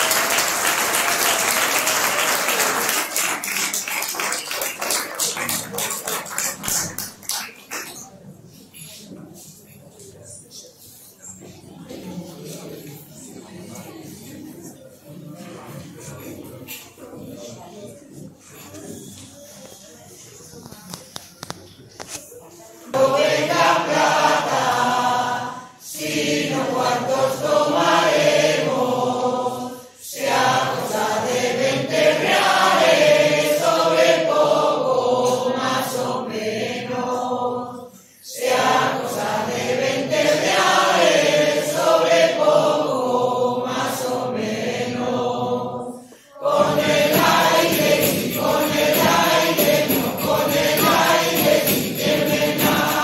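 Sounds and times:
mixed choir singing: 0:00.0 - 0:03.6, 0:22.9 - 0:53.0.

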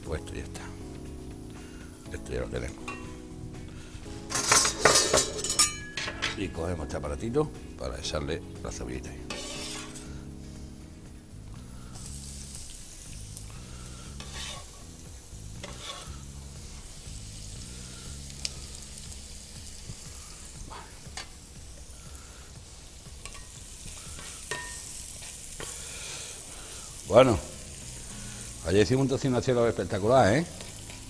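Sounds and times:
onion sizzling in oil: 0:09.2 - 0:31.0
metal scraper scraping: 0:09.3 - 0:10.0, 0:14.2 - 0:14.7, 0:15.6 - 0:16.1
spatula stirring: 0:09.3 - 0:10.1, 0:14.1 - 0:14.8, 0:15.6 - 0:16.3, 0:23.2 - 0:25.8
metal clicking on pan: 0:23.2 - 0:23.5, 0:24.5 - 0:24.8.

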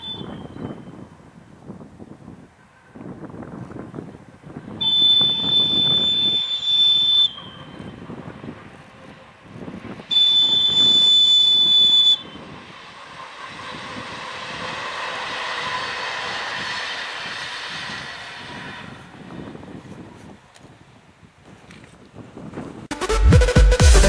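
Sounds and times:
locomotive whistle blasts: 0:00.0 - 0:01.2, 0:04.6 - 0:20.0
train passing: 0:00.0 - 0:23.0.

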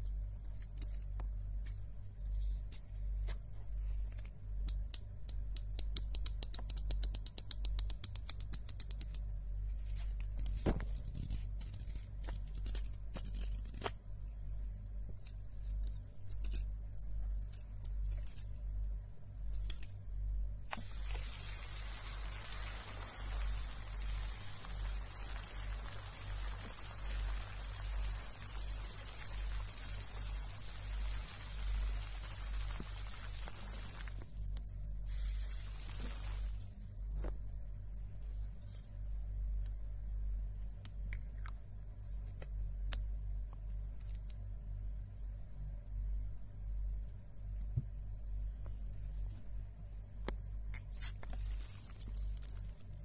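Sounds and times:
steady hiss: 0:19.3 - 0:37.4, 0:50.8 - 0:53.0.

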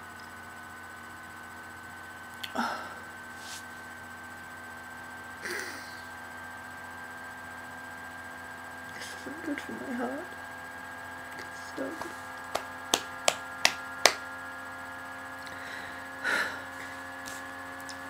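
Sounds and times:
electrical hum: 0:00.0 - 0:18.0
person sighing: 0:02.5 - 0:03.1, 0:05.4 - 0:06.0, 0:15.5 - 0:17.0
breathy rubbing sound: 0:03.3 - 0:03.7.

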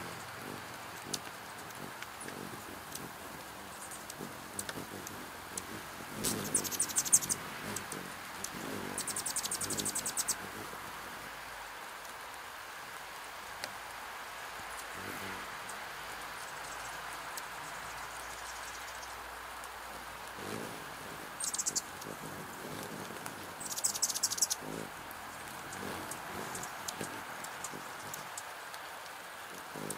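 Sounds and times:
hummingbirds chittering: 0:00.0 - 0:12.2, 0:14.3 - 0:29.9
steady rain: 0:00.0 - 0:29.9.

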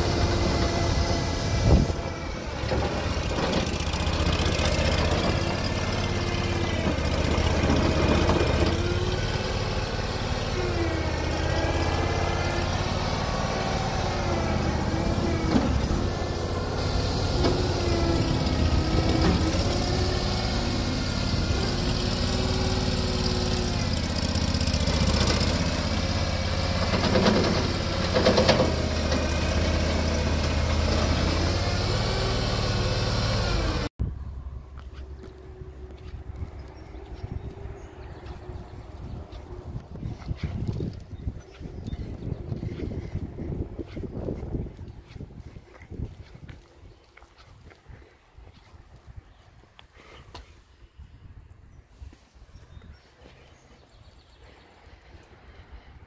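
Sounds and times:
skid steer engine running: 0:00.0 - 0:48.2
clunks: 0:01.9 - 0:09.2, 0:14.6 - 0:20.1, 0:25.0 - 0:31.3.

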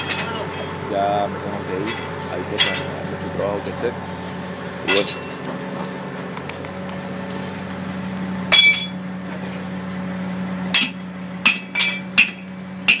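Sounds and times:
low hum: 0:00.0 - 0:13.0
hammer striking metal: 0:04.9 - 0:05.4, 0:08.5 - 0:09.0, 0:10.7 - 0:13.0.

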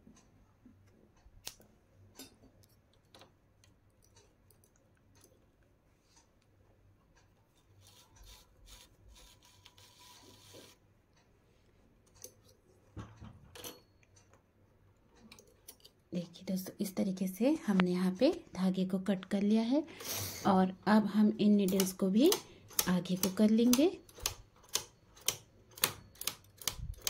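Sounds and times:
scissors snipping yarn: 0:21.5 - 0:27.0.

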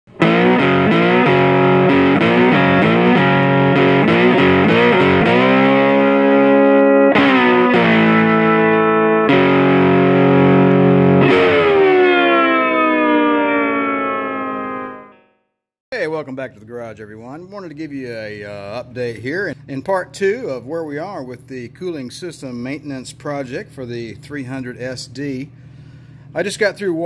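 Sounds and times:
distorted electric guitar riff: 0:00.1 - 0:15.4.

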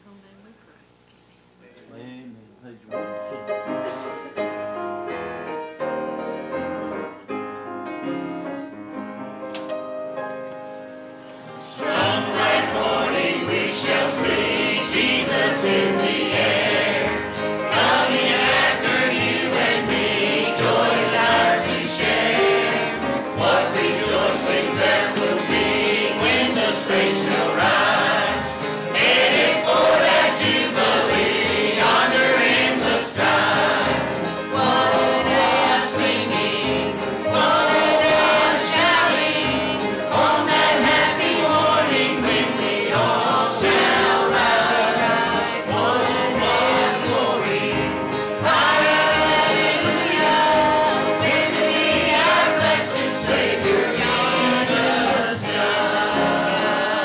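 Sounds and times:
group singing gospel: 0:11.4 - 0:57.0.

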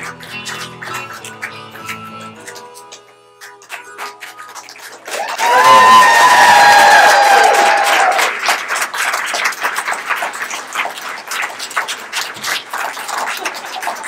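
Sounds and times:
electric guitar: 0:00.0 - 0:06.0
audience clapping: 0:00.0 - 0:14.0.

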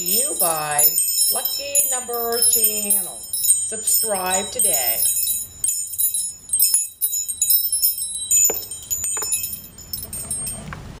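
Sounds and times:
wind chimes ringing: 0:00.0 - 0:11.0.

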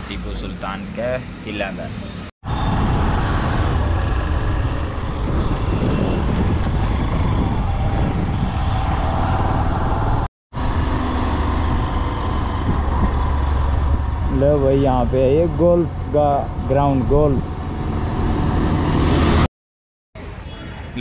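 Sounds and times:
wind noise: 0:02.4 - 0:19.5
motorcycle engine: 0:02.5 - 0:19.5.

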